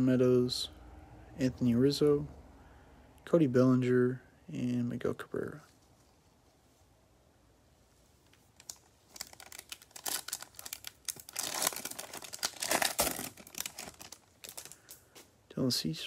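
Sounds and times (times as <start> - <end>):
foil wrapper crinkling and tearing: 8.6 - 15.0.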